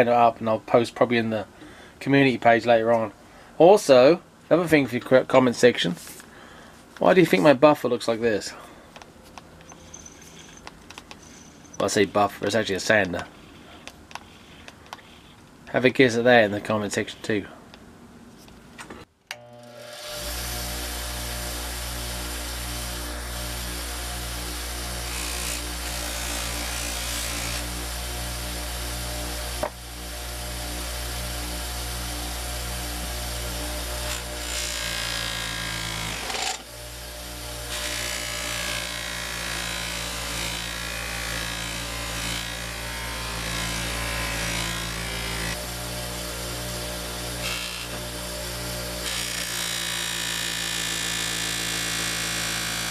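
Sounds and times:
buffing wheel motor running: 19.4 - 34.5.

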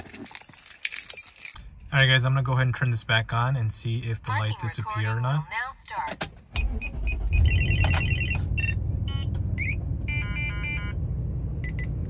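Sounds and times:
car engine starting and idling: 6.2 - 12.0.

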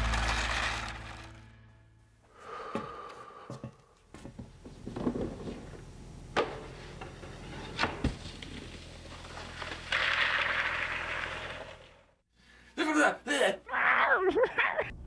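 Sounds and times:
background music: 0.0 - 2.2.

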